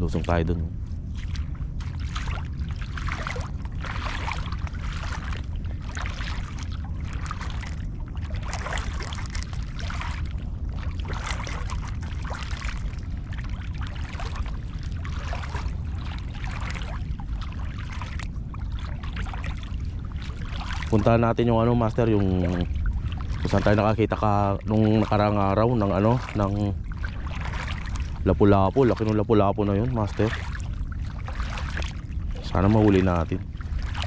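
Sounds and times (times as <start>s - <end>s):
footsteps splashing in water: 0.0s - 34.0s
low rumble: 0.0s - 34.0s.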